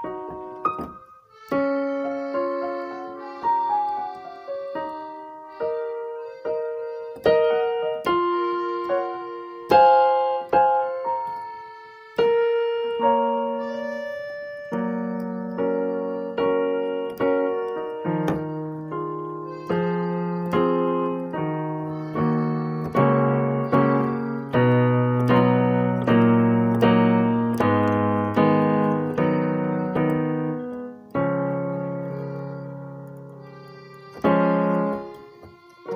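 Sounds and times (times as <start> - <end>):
solo piano music: 0.0 - 35.9.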